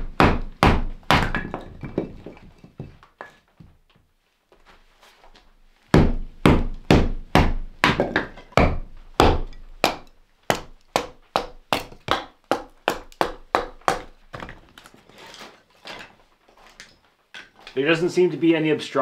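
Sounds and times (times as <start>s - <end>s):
baton knocking on knife: 6.0s - 14.5s.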